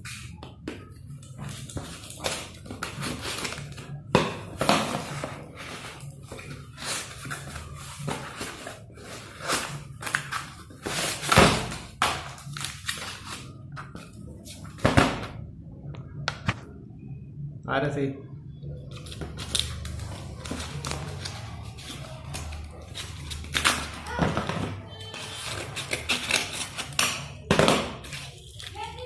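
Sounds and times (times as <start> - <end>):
cardboard box rustling and scraping: 4.6 - 11.7
packing tape cut and pulled: 4.9 - 13.5, 18.9 - 24.2, 25.0 - 27.3
paper crinkling: 18.9 - 24.2, 28.0 - 29.0.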